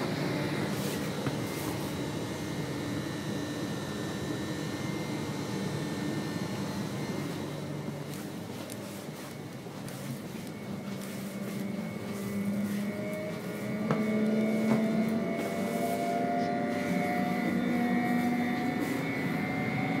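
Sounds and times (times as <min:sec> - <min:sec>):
electric train motors whining: 0:00.0 - 0:20.0.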